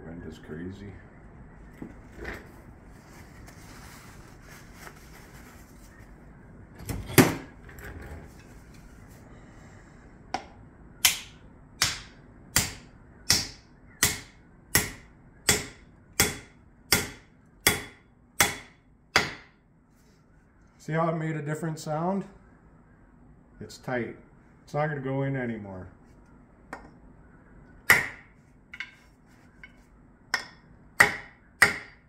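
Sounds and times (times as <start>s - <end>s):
axe hammering axe head onto handle: 10.4s - 19.5s, 27.9s - 29.0s, 30.3s - 32.0s.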